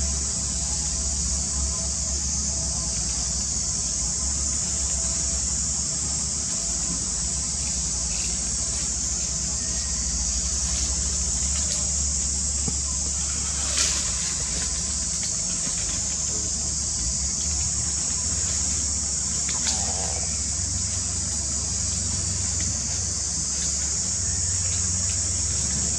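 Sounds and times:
insects droning: 0.0 - 25.9.

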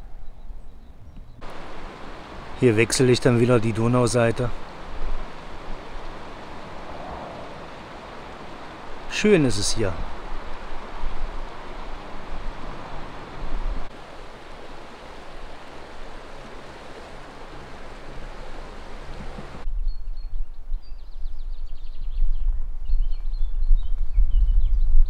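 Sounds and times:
wind rumble on microphone: 0.0 - 9.1, 9.7 - 25.0
birds chirping: 0.0 - 19.6
river water rushing: 1.4 - 19.6.

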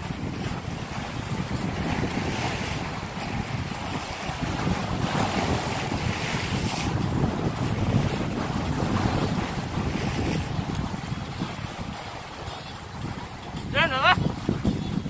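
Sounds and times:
waves breaking on rocks: 0.0 - 15.0
wind buffeting microphone: 0.0 - 15.0.

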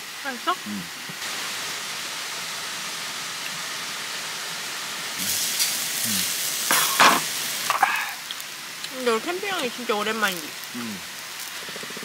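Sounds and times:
food sizzling on a grill: 0.0 - 12.0
waterfall rushing: 6.0 - 8.2.

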